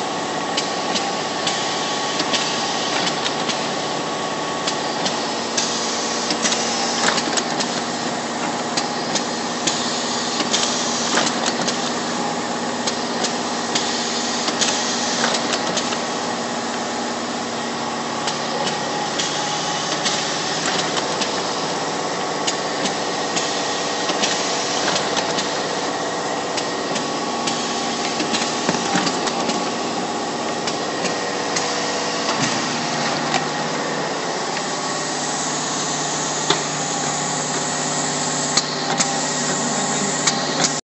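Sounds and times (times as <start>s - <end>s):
machine hum and whine: 0.0s - 40.8s
sharp mechanical clicks and knocks: 0.5s - 3.8s, 4.6s - 12.0s, 12.8s - 16.1s, 18.2s - 25.9s, 26.5s - 29.8s.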